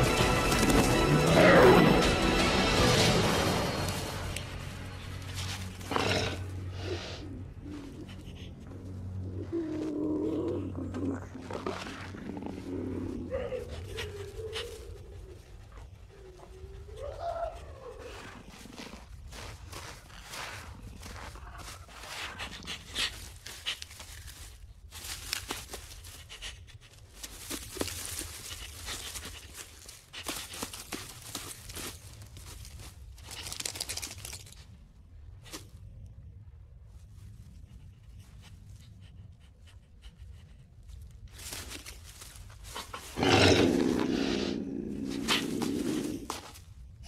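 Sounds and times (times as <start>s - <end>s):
animal digging in earth: 4.4s - 36.0s, 37.0s - 47.0s
loud animal growl: 43.2s - 46.4s.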